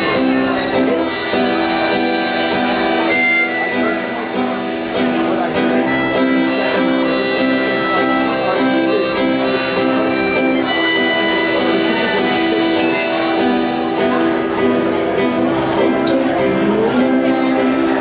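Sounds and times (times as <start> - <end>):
accordion holding long chords: 0.0 - 18.0
strummed acoustic guitar: 0.0 - 18.0.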